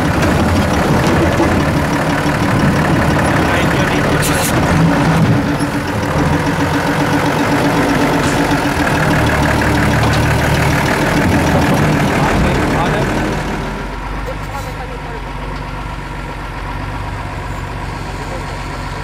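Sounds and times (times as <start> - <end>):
diesel engine running at low revs: 0.0 - 19.0.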